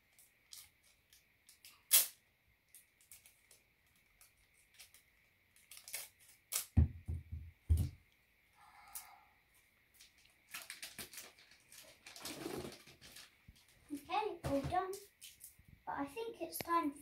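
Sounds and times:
scissors snipping tape: 1.5 - 2.2, 5.7 - 6.8
wrapping paper crinkling: 2.7 - 6.6, 9.9 - 14.0.

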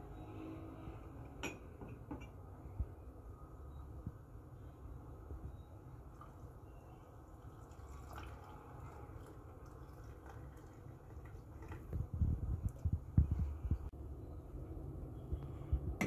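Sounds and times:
coffee trickling into mug: 6.1 - 12.9.

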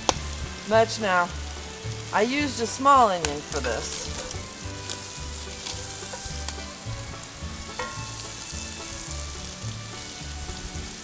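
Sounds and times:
sausage and onion sizzling in pan: 0.0 - 11.0
utensil clicking against pan: 2.9 - 6.7.

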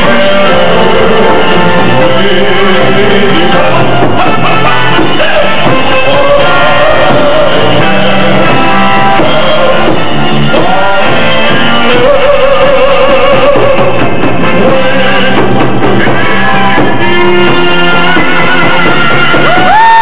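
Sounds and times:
man singing into a microphone: 0.0 - 15.8
drums: 0.0 - 20.0
electric guitar: 0.0 - 20.0
keyboard: 0.0 - 20.0.

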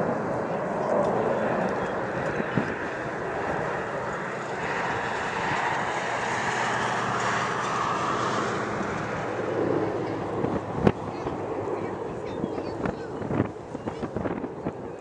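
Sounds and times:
jets flying over: 0.0 - 15.0.

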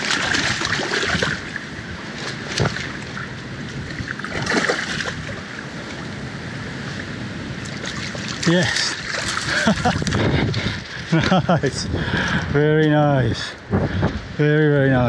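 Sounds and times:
fish splashing: 0.0 - 5.9, 7.6 - 10.0
river water rushing: 0.0 - 11.1
wind on microphone: 0.0 - 15.0.

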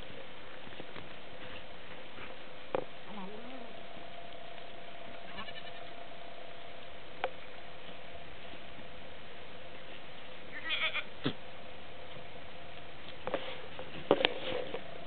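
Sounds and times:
faint steady hum: 0.0 - 15.0
goat kid bleating: 5.3 - 5.9, 10.5 - 11.4.

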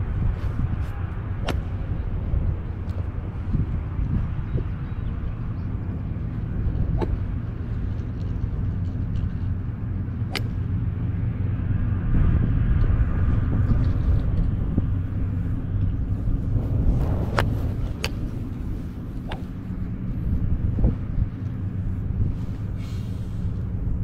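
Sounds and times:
low outdoor rumble: 0.0 - 24.0
golf club striking ball: 1.4 - 1.8, 6.9 - 7.3, 10.2 - 10.7, 19.2 - 19.6.

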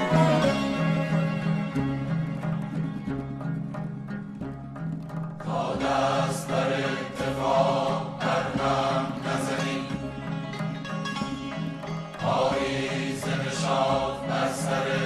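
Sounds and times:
voices chanting: 5.5 - 10.4, 12.2 - 15.0.

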